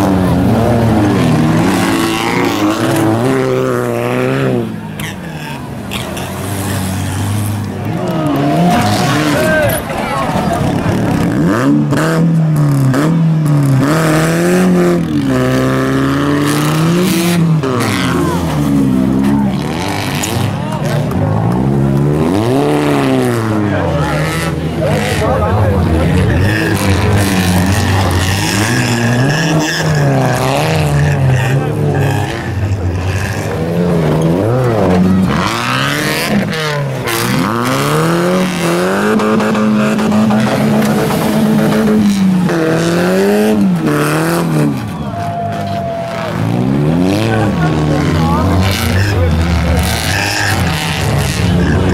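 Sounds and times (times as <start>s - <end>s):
car engines revving hard: 0.0s - 51.9s.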